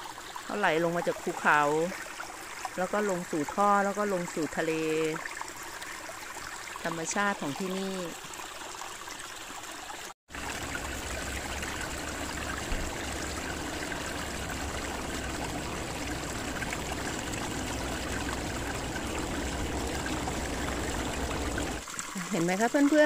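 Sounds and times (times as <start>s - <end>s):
stream trickling over rocks: 0.0s - 23.0s.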